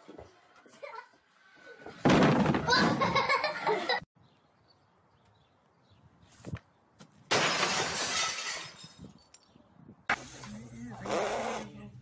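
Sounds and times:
glass shattering: 7.3 - 9.0.

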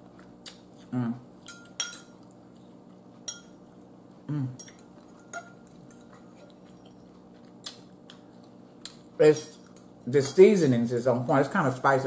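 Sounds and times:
person humming: 4.2 - 4.6
fork scraping against a bowl: 4.6 - 7.0.

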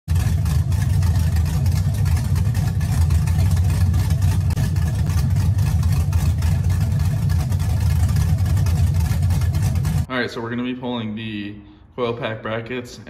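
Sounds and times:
car engine idling: 0.1 - 10.1.

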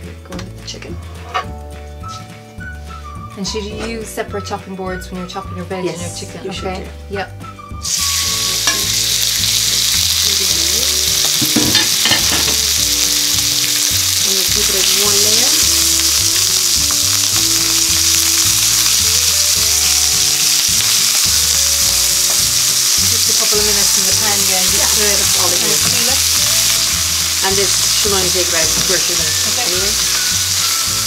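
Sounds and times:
chicken sizzling in hot oil: 7.8 - 31.0.

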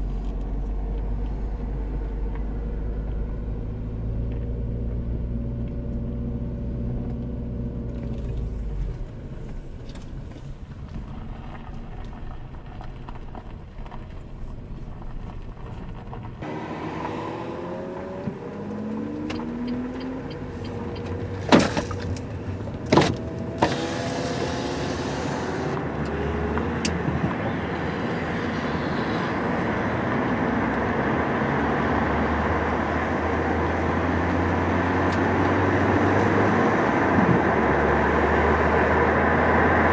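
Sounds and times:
car engine running: 0.0 - 28.4
road and wind noise: 0.0 - 39.9.

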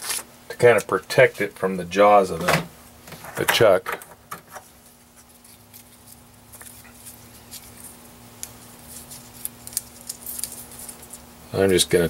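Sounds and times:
steady low hum: 0.0 - 12.0
paper rustling: 8.8 - 11.2.

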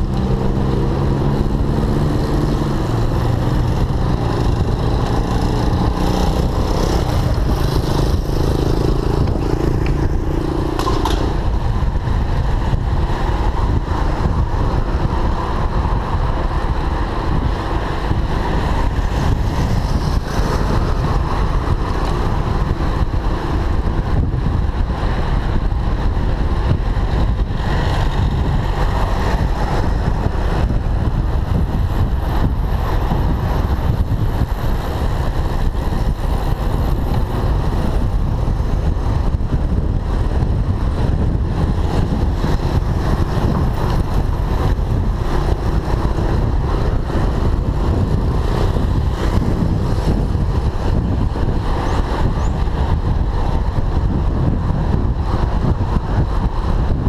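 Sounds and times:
motor traffic: 0.0 - 57.0
wind rumble on microphone: 0.0 - 57.0.

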